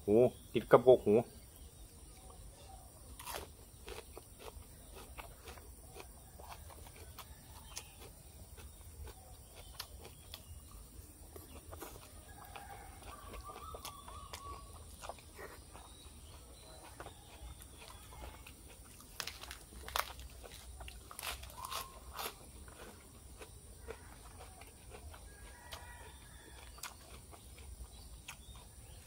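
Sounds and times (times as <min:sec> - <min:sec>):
lettuce leaf tearing: 0:03.2 - 0:04.0, 0:21.1 - 0:22.4
chewing and mouth smacking: 0:03.2 - 0:29.0.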